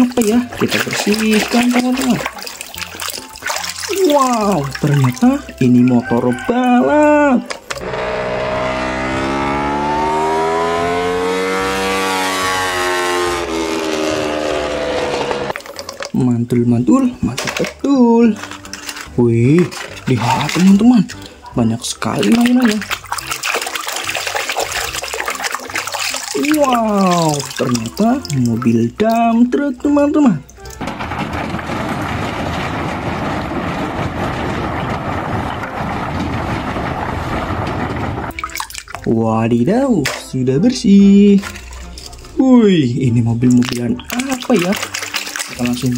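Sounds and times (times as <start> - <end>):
water spraying on plastic toy: 0.0 - 5.5, 22.0 - 28.8, 43.6 - 45.9
racing motorcycle engine: 7.7 - 15.6.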